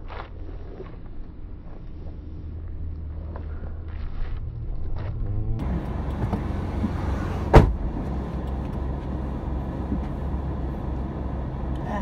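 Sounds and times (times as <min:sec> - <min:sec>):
car engine rumble from inside: 0:00.0 - 0:12.0
loud thump: 0:06.2 - 0:08.1.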